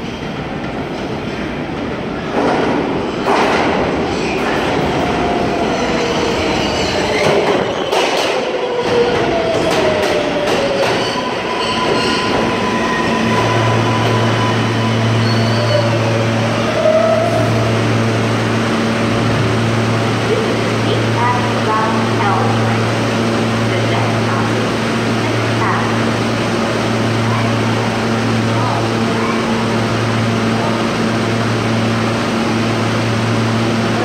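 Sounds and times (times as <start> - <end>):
subway train rumbling: 0.0 - 34.0.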